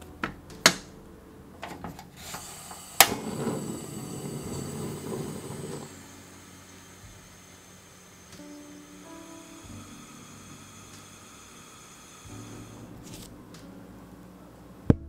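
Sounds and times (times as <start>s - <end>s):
gas flame rushing: 2.2s - 13.7s.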